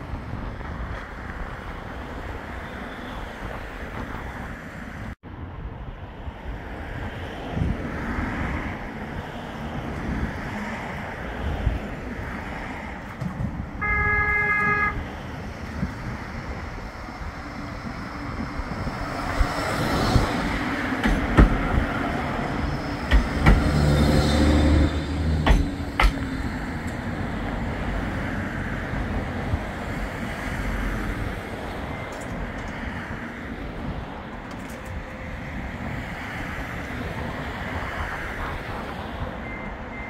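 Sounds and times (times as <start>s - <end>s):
tram passing: 0.0s - 40.0s
tram horn: 13.8s - 15.2s
wheels clicking on track: 15.7s - 27.6s.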